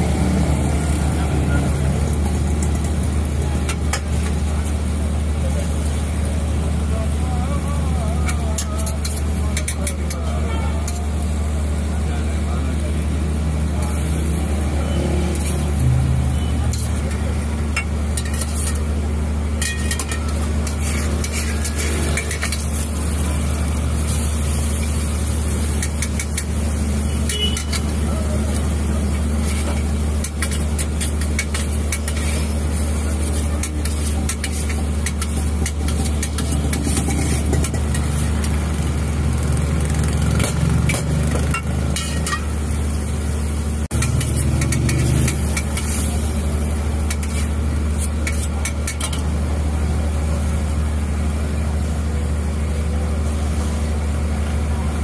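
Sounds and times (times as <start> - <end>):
flatbread sizzling on griddle: 0.0 - 55.0
metal spatula clicking on griddle: 27.2 - 27.9, 30.2 - 32.4, 33.6 - 38.1, 48.2 - 49.2.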